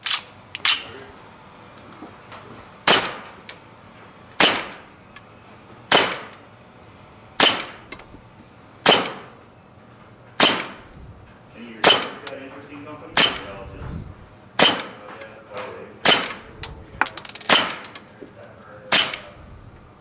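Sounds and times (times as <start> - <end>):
airsoft pistol shots: 2.9 - 3.2, 4.4 - 4.9, 5.9 - 6.4, 7.4 - 8.0, 8.8 - 9.3, 10.4 - 10.9, 11.8 - 12.4, 13.2 - 13.6, 14.6 - 15.0, 16.0 - 16.5, 17.5 - 17.9, 18.9 - 19.3.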